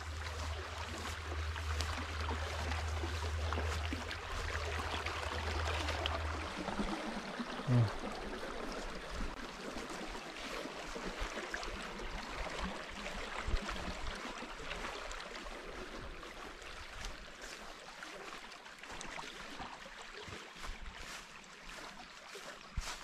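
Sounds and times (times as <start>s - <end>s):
stream water rushing: 0.0s - 23.0s.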